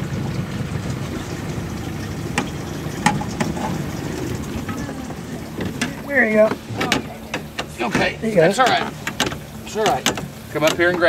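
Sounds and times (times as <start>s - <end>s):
outboard motor idling: 0.0s - 11.0s
sharp knocks: 5.6s - 11.0s.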